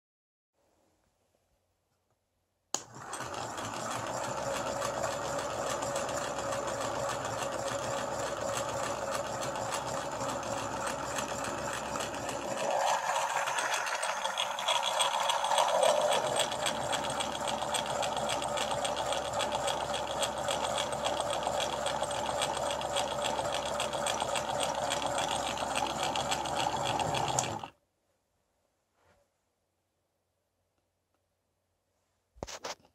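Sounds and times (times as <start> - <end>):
model engine whirring and clattering: 2.8 - 27.7.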